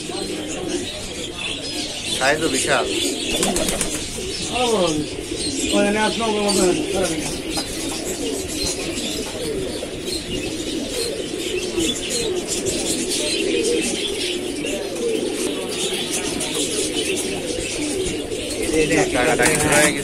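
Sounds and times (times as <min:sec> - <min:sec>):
pigeons cooing: 0:00.0 - 0:20.0.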